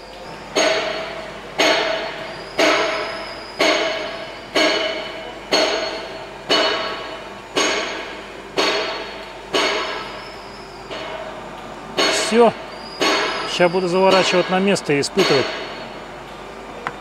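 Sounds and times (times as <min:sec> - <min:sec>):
metal struck hard ringing: 0:12.0 - 0:15.9.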